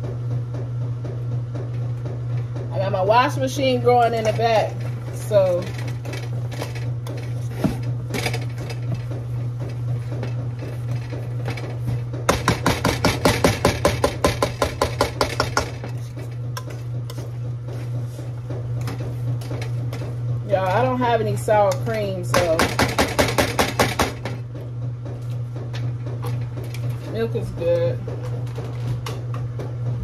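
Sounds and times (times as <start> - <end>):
washing machine humming: 0.0 - 30.0
utensils knocking: 18.8 - 24.4.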